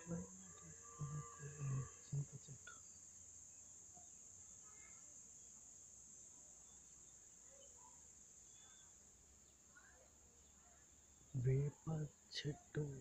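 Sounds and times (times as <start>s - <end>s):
crickets chirping: 0.0s - 13.0s
brief voice: 1.0s - 2.8s, 11.4s - 13.0s.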